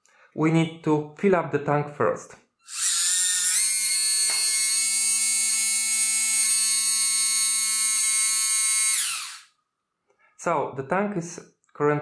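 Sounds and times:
small water pump whining: 0:02.7 - 0:09.5.

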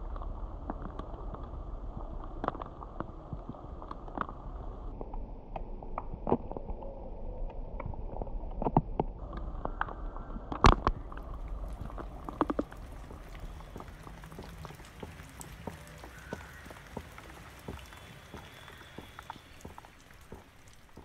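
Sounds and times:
raindrops striking nearby: 0:10.5 - 0:21.0
rain hissing: 0:10.9 - 0:21.0.

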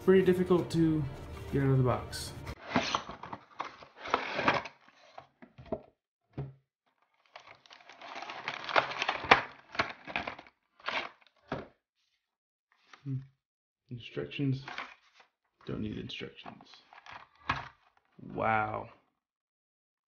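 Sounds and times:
plastic packaging crinkling: 0:02.6 - 0:05.3, 0:07.0 - 0:11.4.

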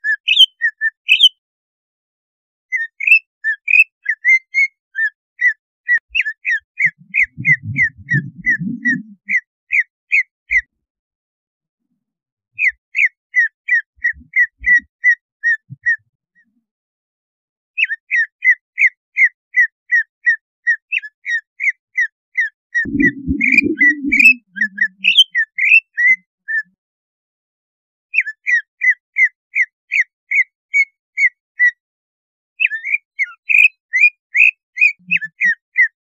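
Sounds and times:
bird singing sharp whistled notes: 0:00.1 - 0:01.4, 0:22.8 - 0:25.8.

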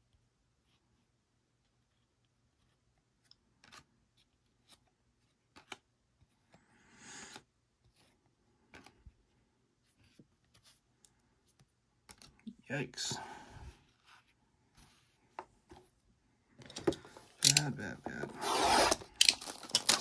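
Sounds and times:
trading cards clicking: 0:17.4 - 0:17.7.

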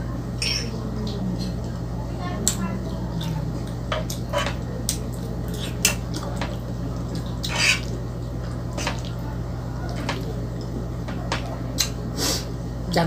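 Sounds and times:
steady low hum: 0:00.0 - 0:13.0
fork scraping in frying pan: 0:07.4 - 0:07.9.

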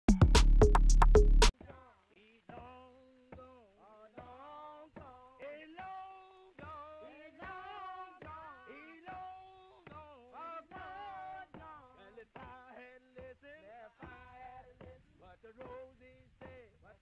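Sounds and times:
electronic drum beat: 0:00.0 - 0:01.5.

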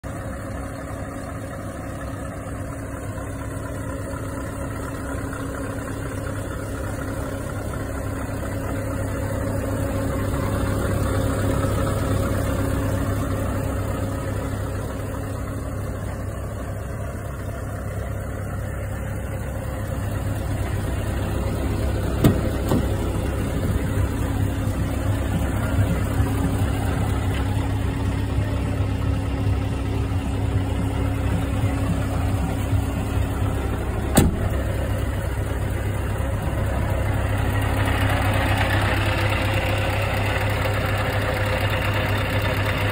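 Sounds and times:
diesel engine idling: 0:00.0 - 0:42.9
sharp knocks: 0:22.2 - 0:22.9.

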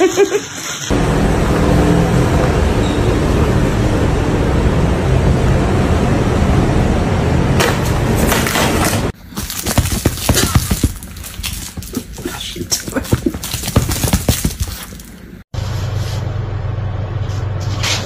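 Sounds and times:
paper crinkles: 0:09.2 - 0:15.4.

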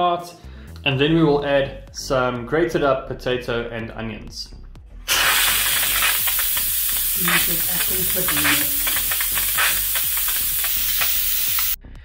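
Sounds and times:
pressure valve hissing steam: 0:05.1 - 0:11.8.

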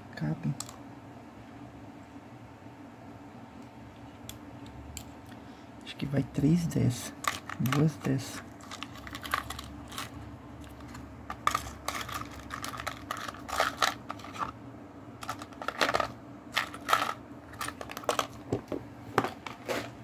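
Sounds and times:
steady low hum: 0:00.0 - 0:20.0
batteries and plastic case clicking: 0:07.2 - 0:14.5, 0:15.2 - 0:18.7.

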